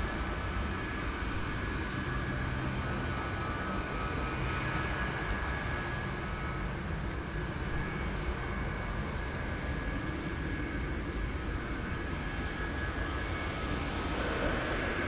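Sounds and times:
jet engines whining: 0:00.0 - 0:15.0.

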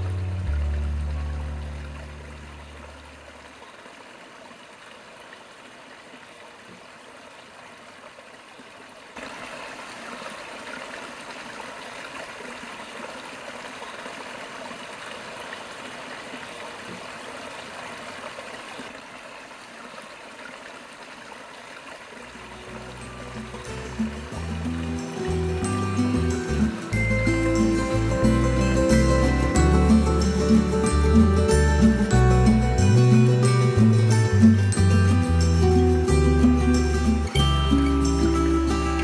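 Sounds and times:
background music: 0:00.0 - 0:03.0, 0:22.4 - 0:39.0
river water rushing: 0:00.0 - 0:39.0.

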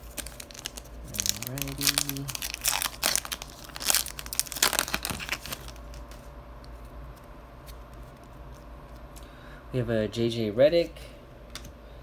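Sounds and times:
foil wrapper tearing and crinkling: 0:00.0 - 0:06.2
cards rustling: 0:00.0 - 0:09.3.

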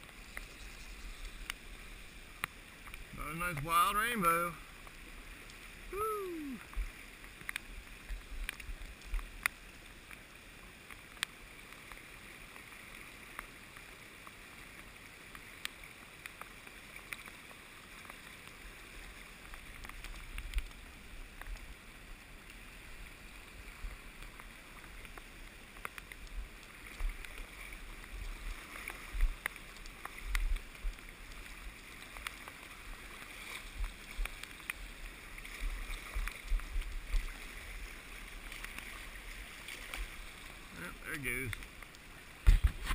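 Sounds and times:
river rushing over rocks: 0:01.4 - 0:08.0
thumps and clicks against camera: 0:42.4 - 0:42.9.

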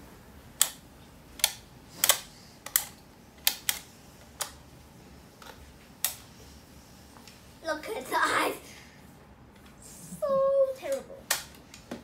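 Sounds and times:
plastic toy parts clicking: 0:01.4 - 0:04.6.

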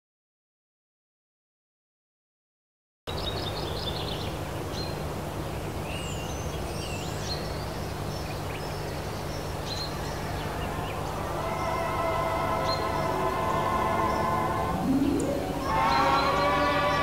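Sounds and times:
birds chirping and whistling: 0:09.4 - 0:17.0.

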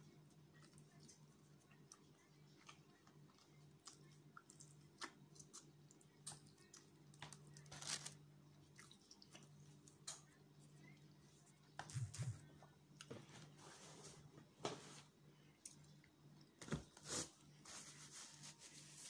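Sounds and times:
low steady hum: 0:00.0 - 0:19.0
person chewing food: 0:08.6 - 0:11.0.

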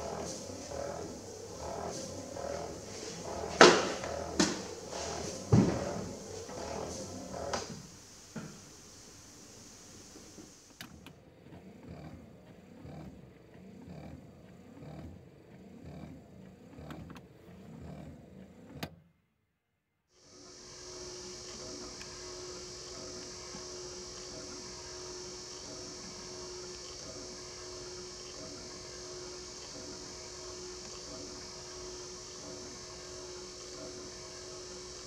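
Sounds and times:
windscreen wipers sweeping: 0:00.0 - 0:08.0
motor spinning with high whine: 0:00.0 - 0:18.9, 0:20.2 - 0:35.0
click: 0:10.7 - 0:19.0, 0:21.5 - 0:22.2.

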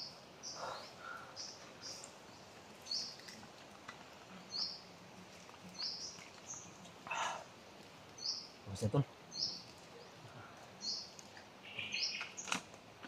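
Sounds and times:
bird chirping: 0:00.0 - 0:03.4, 0:04.3 - 0:04.9, 0:05.6 - 0:07.3, 0:08.1 - 0:12.6.

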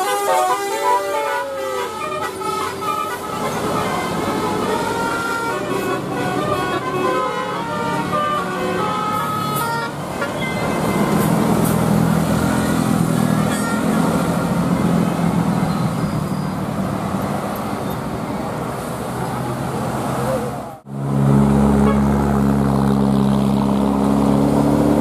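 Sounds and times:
multi-tone air horn tune: 0:00.0 - 0:11.3
bus engine passing: 0:00.0 - 0:25.0.

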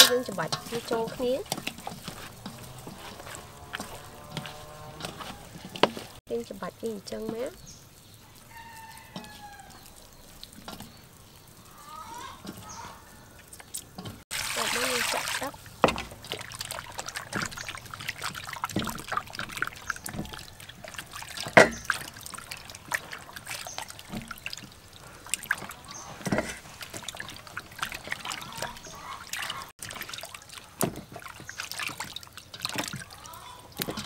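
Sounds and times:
water sloshing and squelching: 0:00.0 - 0:34.0.

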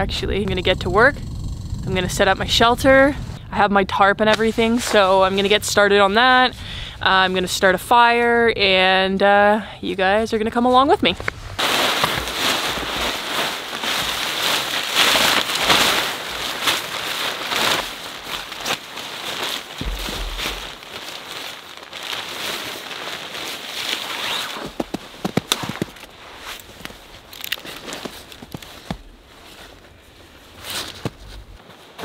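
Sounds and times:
nylon gear rustling: 0:11.0 - 0:32.0.

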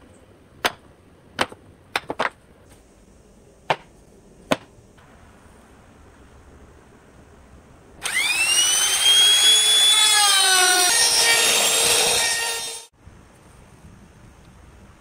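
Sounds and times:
router bit cutting wood: 0:08.0 - 0:12.9
trim router motor whine: 0:08.0 - 0:12.9.

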